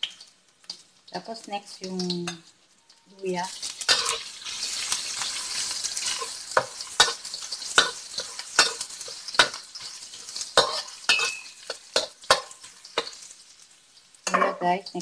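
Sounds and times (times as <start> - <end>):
garlic sizzling in oil: 0.0 - 15.0
spatula scraping and knocking pan: 3.8 - 13.3.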